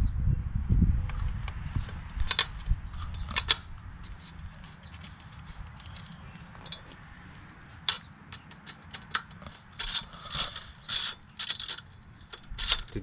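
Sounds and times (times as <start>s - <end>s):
socket ratchet clicking: 2.1s - 7.0s, 7.9s - 13.0s.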